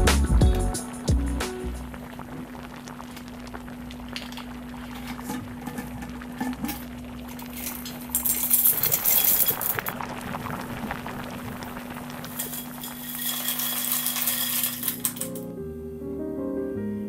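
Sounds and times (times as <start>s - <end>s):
soft music: 0.0s - 2.0s, 15.2s - 17.0s
boiling water hissing and bubbling: 0.0s - 15.3s
pasta pattering into water: 0.8s - 15.4s
dry pasta clattering into bowl: 4.1s - 10.0s, 12.2s - 15.4s.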